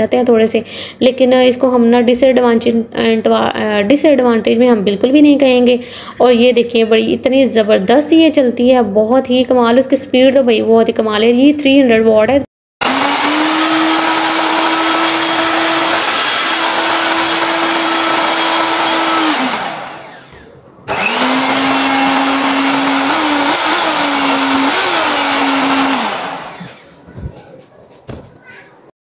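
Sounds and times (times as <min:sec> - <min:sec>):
hand mixer motor hum: 0:12.8 - 0:27.0.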